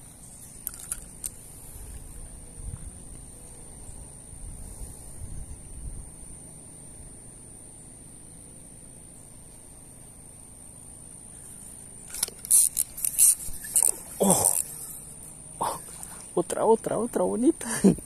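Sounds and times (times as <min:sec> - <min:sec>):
high-pitched insect drone: 0:00.0 - 0:18.0.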